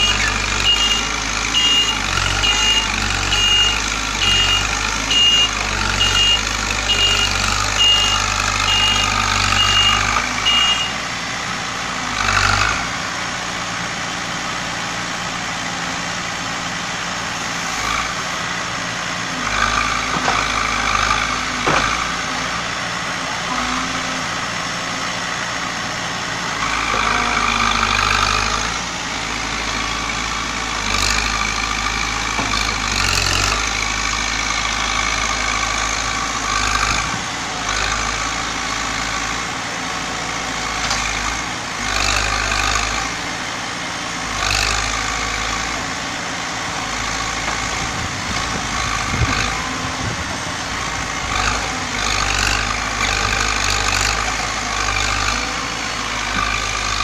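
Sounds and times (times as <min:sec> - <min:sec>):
diesel engine revving: 0:00.0 - 0:57.0.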